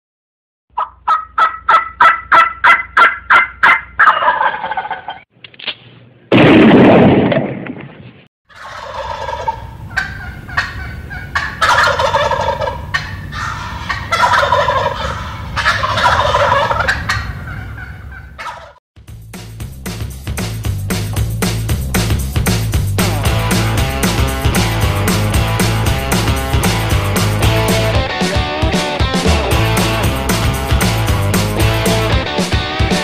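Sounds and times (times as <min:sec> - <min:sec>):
turkeys gobbling: 0:00.7 - 0:05.2, 0:08.5 - 0:18.8
turkey yelps: 0:00.8 - 0:05.2, 0:08.5 - 0:18.8.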